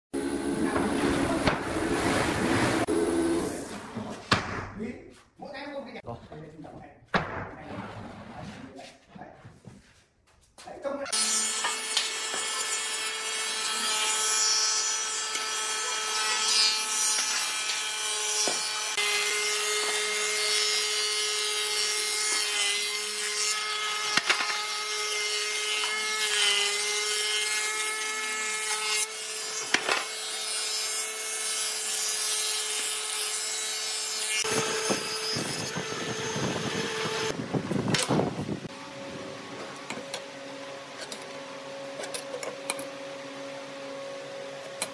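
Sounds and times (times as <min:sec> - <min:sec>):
planer cutterhead whining: 0:34.3 - 0:38.2.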